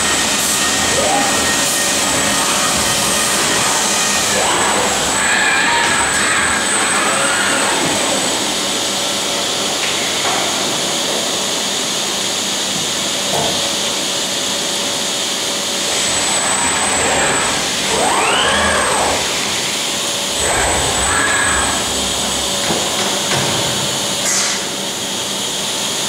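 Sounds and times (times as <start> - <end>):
loud rushing machine noise: 0.0 - 13.2, 14.2 - 25.9
motor whine rising and falling: 15.9 - 24.1.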